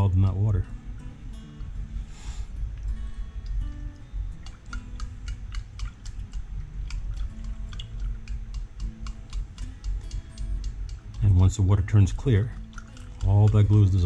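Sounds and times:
utensil clicking against glass: 4.3s - 14.0s.

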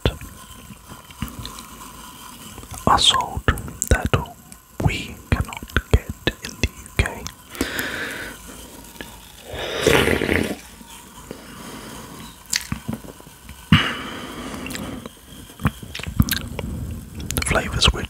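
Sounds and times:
fizzy hisses: 0.0s - 18.0s
sipping and swallowing: 14.6s - 17.6s.

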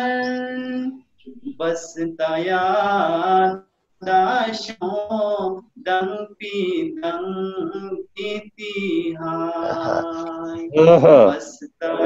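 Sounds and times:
man chanting melodically: 8.9s - 12.0s.

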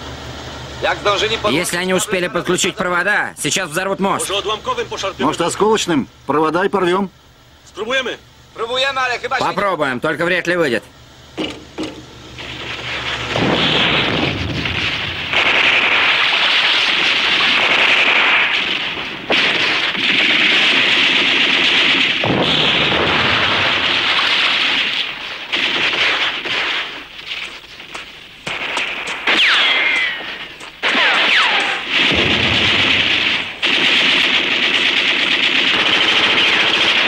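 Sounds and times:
rapid gunfire: 12.4s - 37.0s.

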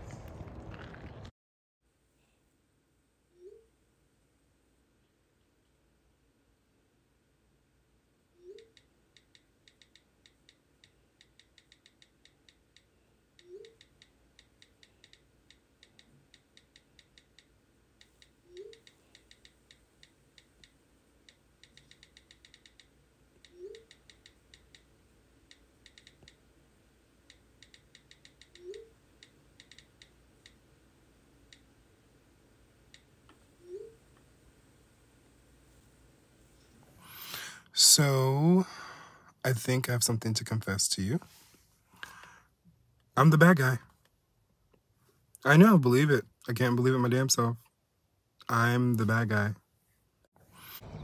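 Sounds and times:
keyboard typing clicks: 8.4s - 24.9s, 25.5s - 26.4s, 27.3s - 30.6s
short rising tone: 50.8s - 51.0s.

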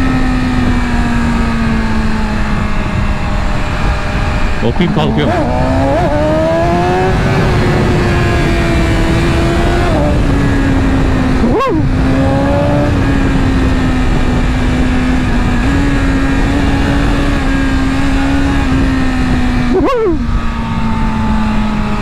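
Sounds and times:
motorcycle engine at speed: 0.0s - 22.0s
wind rush: 1.5s - 21.1s.

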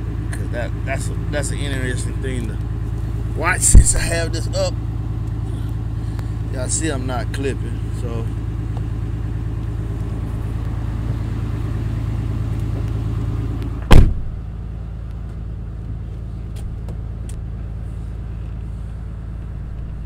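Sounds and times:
subwoofer low test tone: 0.0s - 20.0s
sharp knock: 13.9s - 14.3s.

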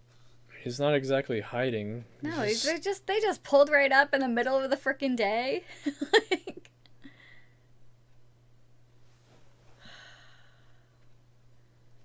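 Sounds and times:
low electrical hum: 0.0s - 12.0s
breathy exhale: 9.8s - 11.0s.

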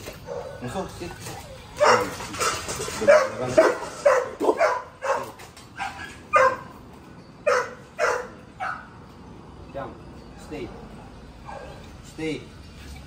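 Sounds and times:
large dog barking sharply: 1.8s - 6.7s, 7.5s - 8.8s.

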